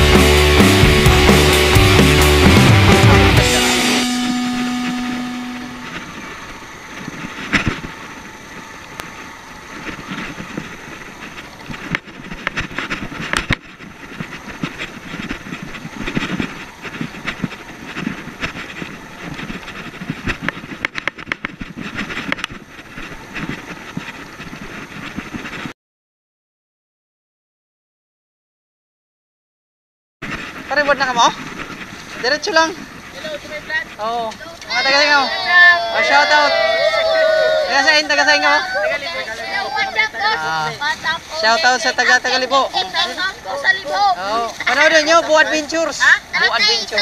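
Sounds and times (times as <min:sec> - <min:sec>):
rock music: 0:00.0 - 0:05.9
motorcycle engine and wind noise: 0:05.9 - 0:25.7.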